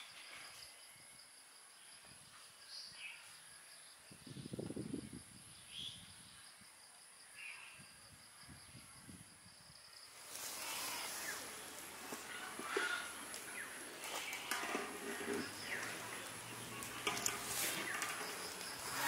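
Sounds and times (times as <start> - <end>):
insects trilling: 0.0 - 19.0
handling rustle: 10.2 - 19.0.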